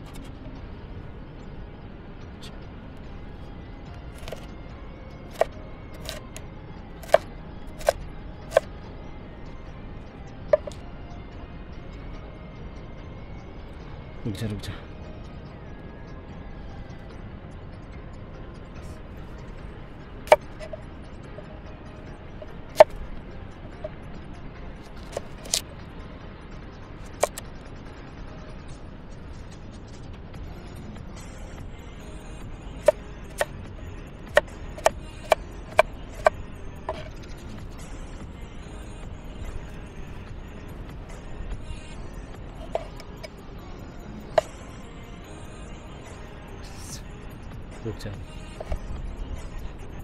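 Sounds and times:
cleaver chopping on wooden board: 0:04.2 - 0:04.4, 0:05.3 - 0:06.2, 0:07.0 - 0:07.2, 0:07.8 - 0:08.6, 0:10.6 - 0:10.8, 0:20.3 - 0:20.8, 0:25.1 - 0:25.6, 0:27.2 - 0:27.4, 0:34.8 - 0:36.3, 0:36.9 - 0:37.1, 0:42.6 - 0:43.0.

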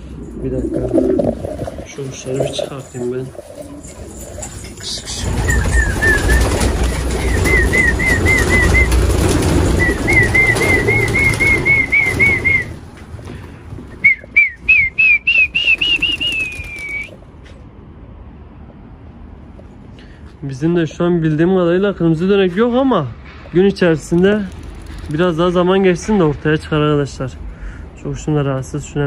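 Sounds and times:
pigeon wingbeats: 0:00.7 - 0:17.3.

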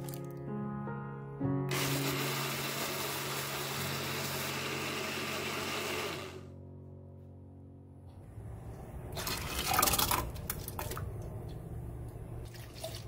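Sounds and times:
blender grinding rice: 0:01.7 - 0:06.5.

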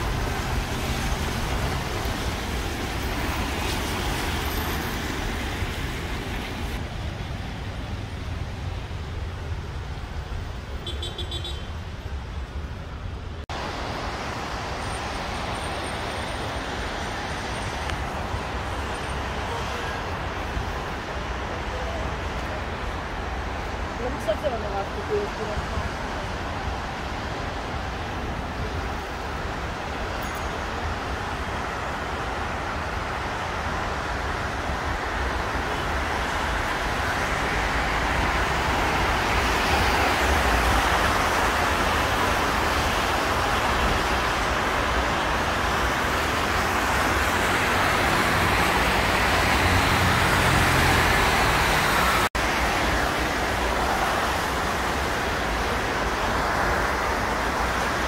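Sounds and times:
highway traffic noise: 0:00.0 - 0:58.0
tyres hissing on wet road: 0:00.0 - 0:58.0.

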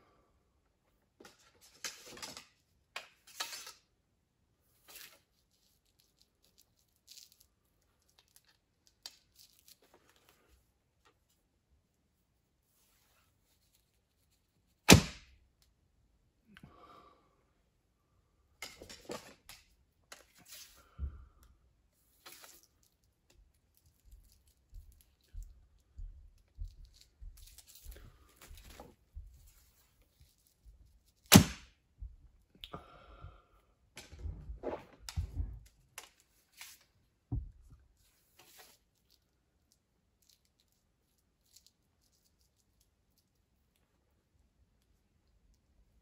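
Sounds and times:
arrows rustling and clicking: 0:01.2 - 0:03.9, 0:22.2 - 0:22.8, 0:34.0 - 0:37.0, 0:38.2 - 0:38.9.

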